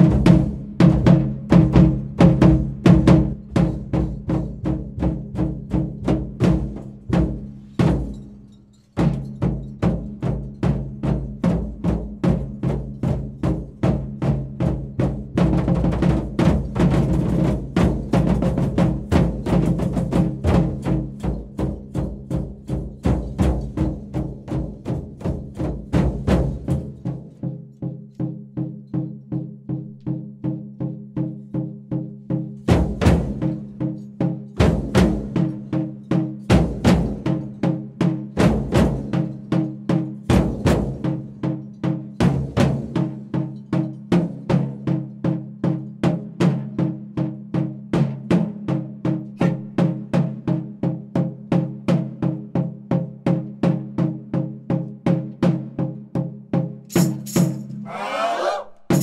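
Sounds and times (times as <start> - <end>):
heavy deep drum strikes: 0.0 - 8.4, 9.0 - 27.4
quick drumbeat: 0.0 - 8.4, 9.0 - 57.7, 58.8 - 59.0.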